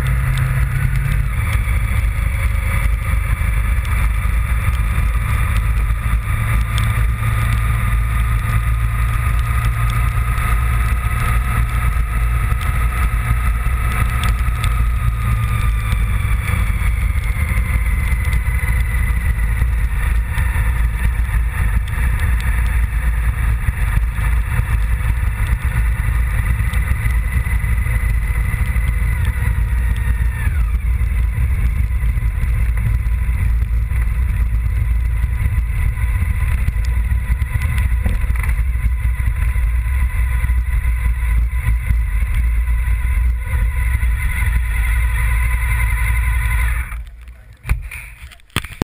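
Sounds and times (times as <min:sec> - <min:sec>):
motorcycle engine running: 0:00.0 - 0:48.8
wind rumble on microphone: 0:00.0 - 0:48.8.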